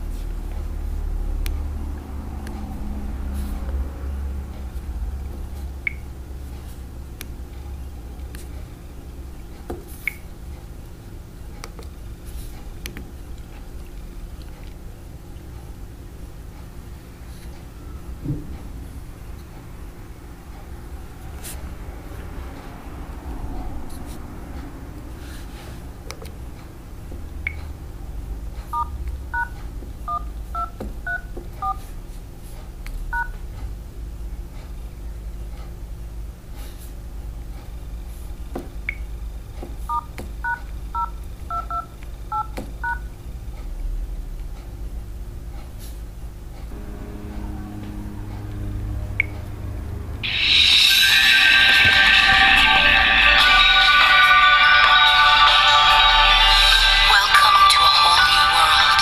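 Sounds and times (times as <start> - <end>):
low steady hum: 0.0 - 59.0
phone keypad tones: 28.8 - 31.8, 39.9 - 43.1
short high ping: 46.7 - 52.8
single higher beep: 49.2 - 49.4.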